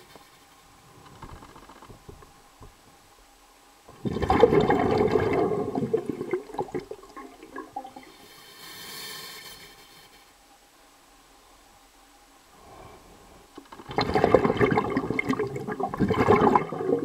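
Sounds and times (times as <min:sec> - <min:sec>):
underwater crackling: 0:01.0 - 0:02.3, 0:03.9 - 0:08.1, 0:13.6 - 0:17.0
gurgling rush of water: 0:03.9 - 0:08.3, 0:13.3 - 0:17.0.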